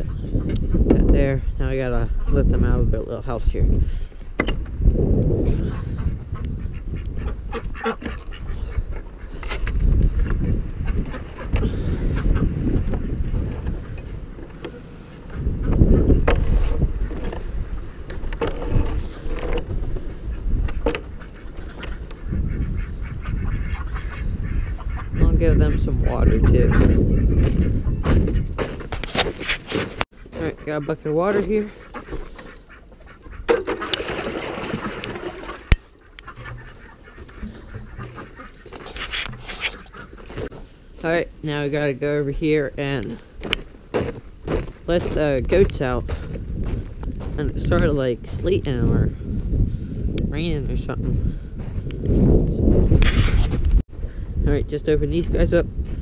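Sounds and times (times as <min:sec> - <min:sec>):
ducks quacking: 0:00.0 - 0:04.2, 0:05.4 - 0:49.2
low rumble on microphone: 0:00.0 - 0:28.8, 0:44.0 - 0:56.0
water poured from a bucket: 0:33.8 - 0:35.7.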